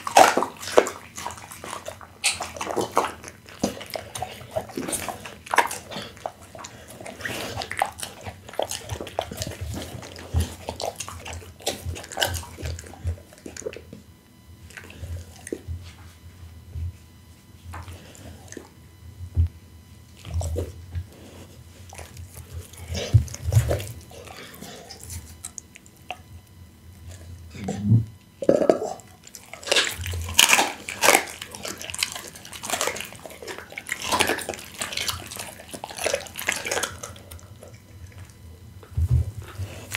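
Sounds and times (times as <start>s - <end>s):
dog biting meat: 0.0s - 14.1s, 21.9s - 27.3s, 28.4s - 38.4s
dog licking and chewing meat: 0.0s - 39.9s.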